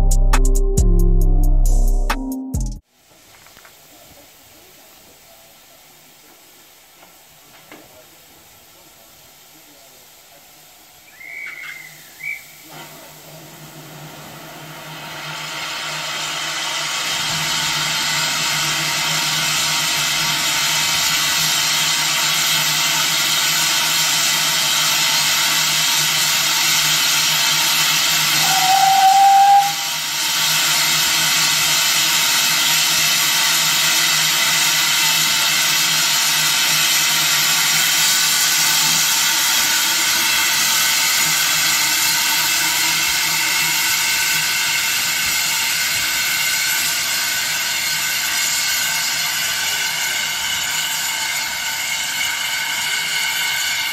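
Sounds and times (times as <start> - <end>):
steam hissing loudly: 2.8 - 53.9
short steam whistle: 11.0 - 12.9, 24.2 - 32.2.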